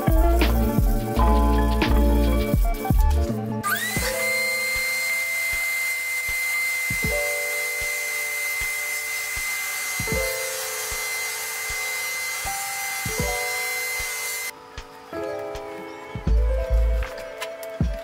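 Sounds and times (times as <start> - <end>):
bench buffer motor whining: 3.6 - 15.1.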